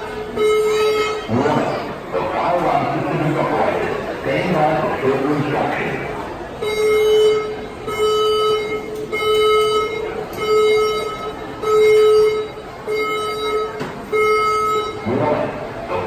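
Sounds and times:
fire alarm buzzy beeps: 0.0 - 2.0, 6.6 - 15.4.

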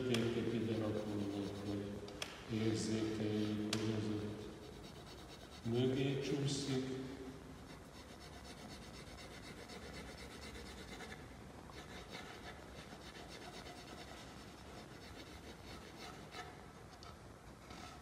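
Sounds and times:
pencil shading on paper: 4.4 - 5.8, 7.6 - 11.2, 11.8 - 16.6.

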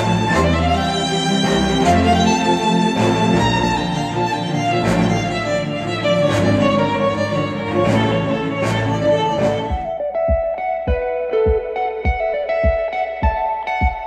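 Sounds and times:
acoustic pop with violin and strings: 0.0 - 10.0.

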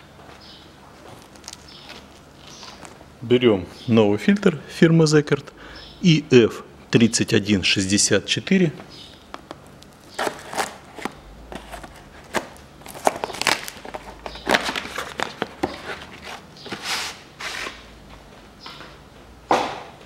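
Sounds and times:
packaging rustling and crinkling: 1.0 - 3.0, 9.4 - 17.7.

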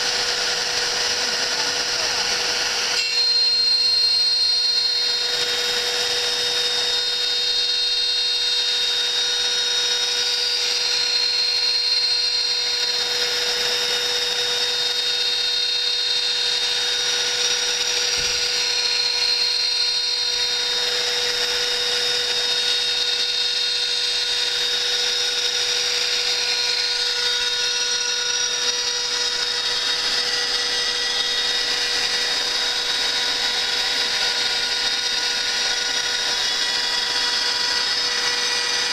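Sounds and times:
end mill cutting through plate: 0.0 - 38.9
spindle high whine: 0.0 - 38.9.

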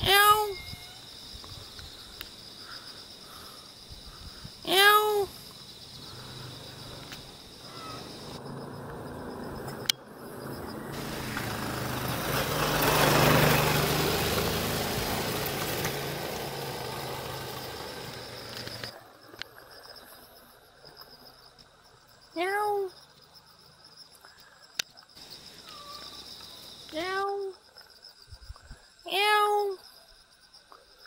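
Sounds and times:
crickets chirping: 0.0 - 31.0
car passing: 6.0 - 19.0.

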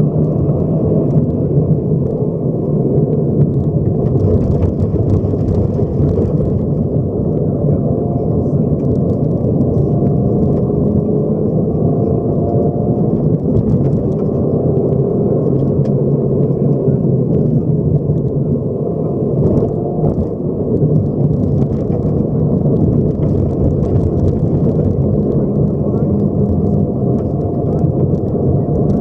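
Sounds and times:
rally car engine running hard: 0.0 - 29.0
tyre and gravel noise: 2.9 - 7.4, 19.4 - 29.0
small stone ticks: 3.4 - 7.4, 19.4 - 29.0.

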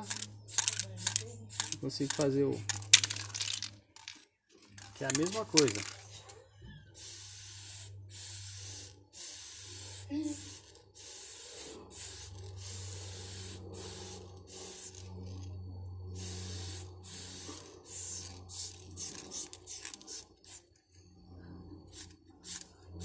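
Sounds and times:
spray can hissing: 0.0 - 3.7, 7.0 - 15.1, 16.2 - 20.7, 21.9 - 22.7.

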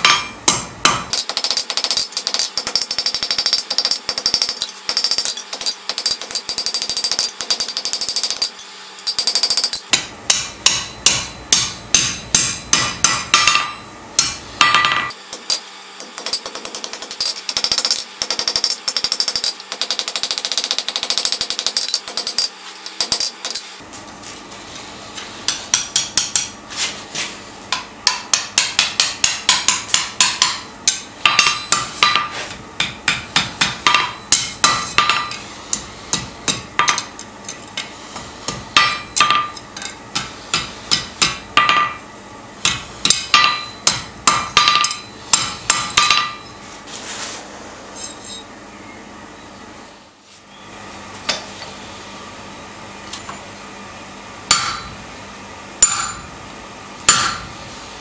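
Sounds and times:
hammer striking steel on anvil: 0.0 - 23.8, 25.4 - 26.6, 27.7 - 42.0, 42.6 - 46.6, 54.5 - 55.0, 55.8 - 56.3, 57.0 - 57.5.

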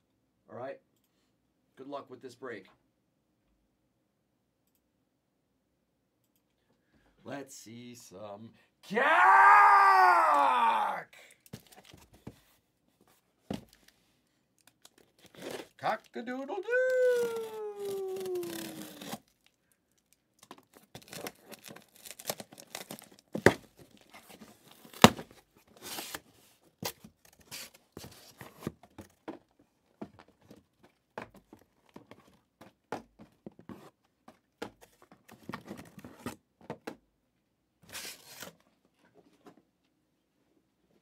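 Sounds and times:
packaging tearing and crinkling: 14.6 - 25.3.

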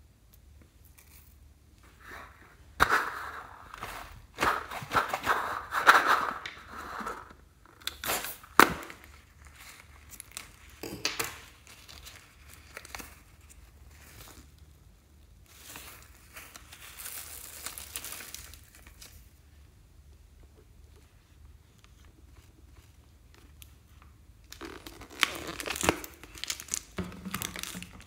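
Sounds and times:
rubber crinkling and crackling: 21.8 - 28.0.

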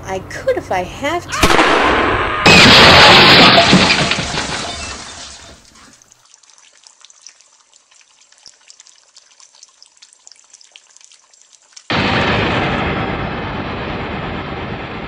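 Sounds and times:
car crash smash: 1.4 - 5.6, 11.9 - 15.0
glass shattering: 2.4 - 5.7.

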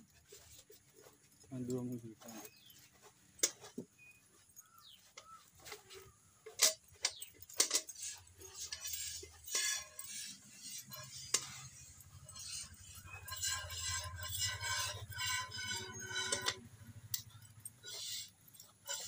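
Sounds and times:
metal pail clinks: 4.6 - 19.0.

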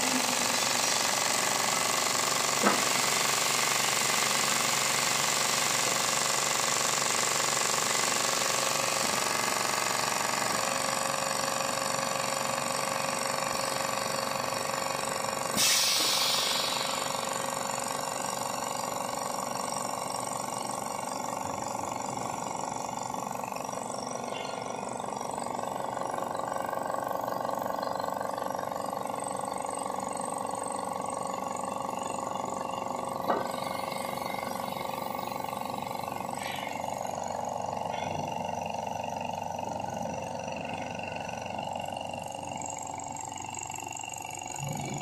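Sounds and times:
air compressor running: 0.0 - 45.0
vacuum packing machine pump: 0.0 - 45.0
burst of hissing air: 15.5 - 17.3.

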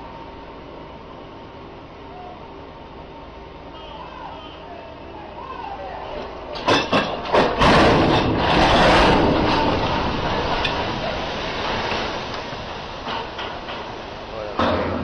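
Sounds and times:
boat hull splashing into water: 6.6 - 15.0.

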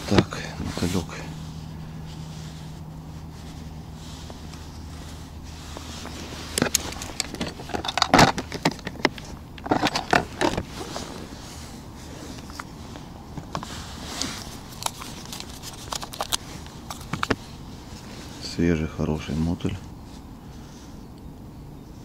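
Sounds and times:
crackly rustling: 0.0 - 21.2
plastic clicks and scrapes: 13.4 - 17.4.

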